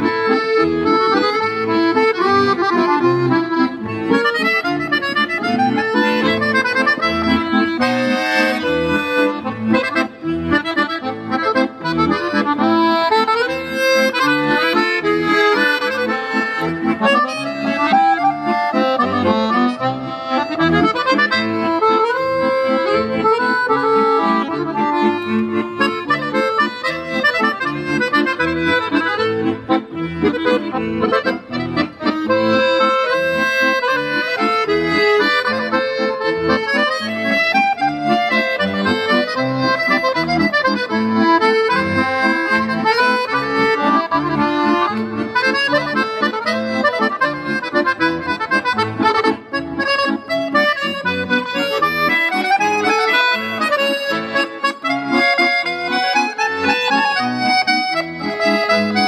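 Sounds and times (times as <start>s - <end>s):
accordion duet: 0.0s - 59.0s.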